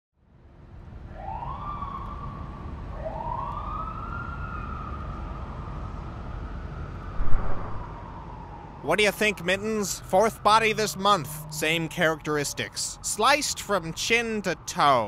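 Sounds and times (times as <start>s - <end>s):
police siren wailing: 1.2s - 13.0s
steady low rumble: 7.1s - 8.1s.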